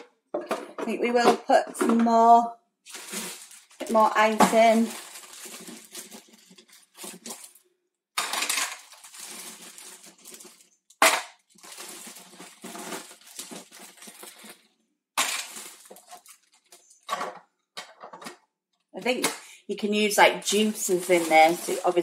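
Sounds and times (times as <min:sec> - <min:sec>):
ice clattering and crunching: 0:02.8 - 0:17.4, 0:20.0 - 0:22.0.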